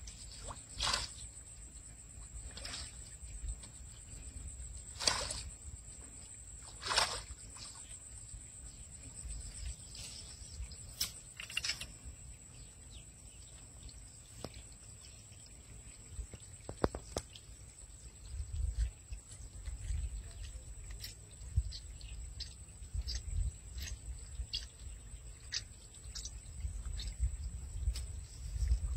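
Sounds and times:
grass rustling: 0:00.0 - 0:01.2.

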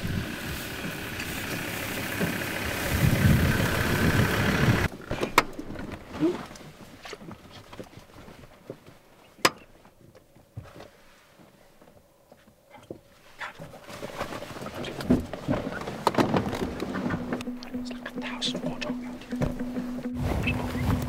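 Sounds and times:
truck engine and road noise: 0:00.0 - 0:08.0, 0:12.9 - 0:21.0.

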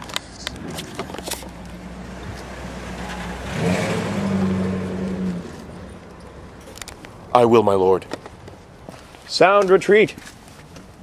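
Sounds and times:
car engine revving: 0:00.5 - 0:06.6.

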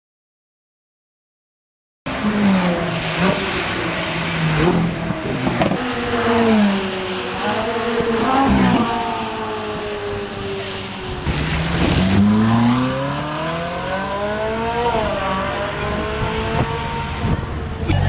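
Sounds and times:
car engine accelerating with upshifts: 0:02.1 - 0:18.0.

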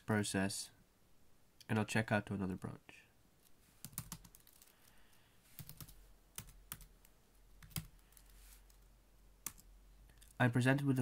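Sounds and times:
typing on a keyboard: 0:03.8 - 0:04.7, 0:05.6 - 0:06.9, 0:07.6 - 0:08.8.

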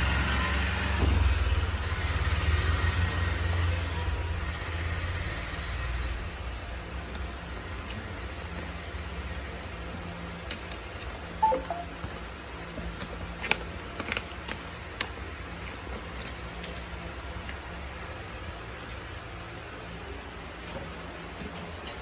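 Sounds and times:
paper pages rustling: 0:09.8 - 0:11.2, 0:12.0 - 0:17.8
two-note blip: 0:11.4 - 0:11.9.

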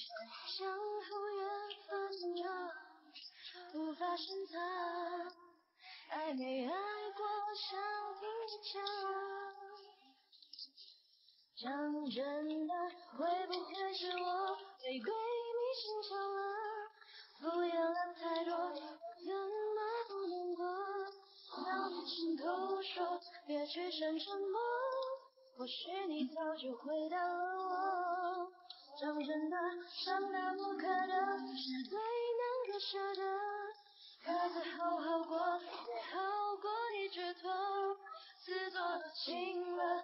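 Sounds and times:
woman singing: 0:00.0 - 0:10.1, 0:11.6 - 0:40.0.

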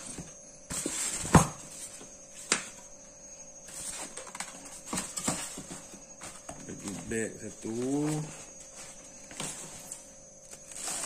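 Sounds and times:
faint steady hum: 0:00.0 - 0:11.0
plastic wrap rustling: 0:03.7 - 0:11.0.

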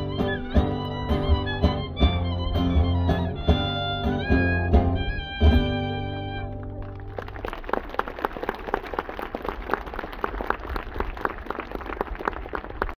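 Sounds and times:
violin note: 0:00.0 - 0:06.8
plucked strings: 0:00.0 - 0:07.1
audience applause: 0:06.6 - 0:13.0.

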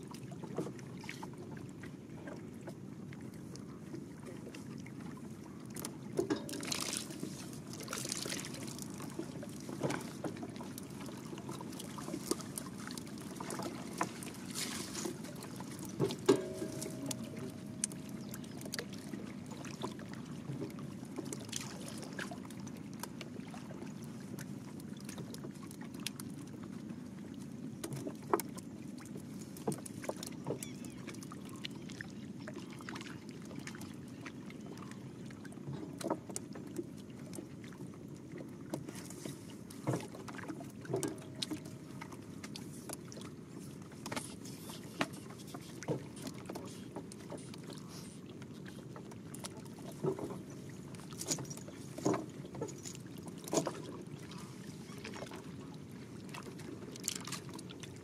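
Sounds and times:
water splashing and dripping: 0:05.7 - 0:23.6.

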